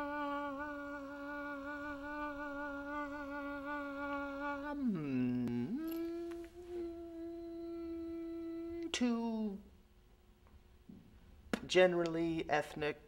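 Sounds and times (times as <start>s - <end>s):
person humming long notes: 0.0s - 9.6s.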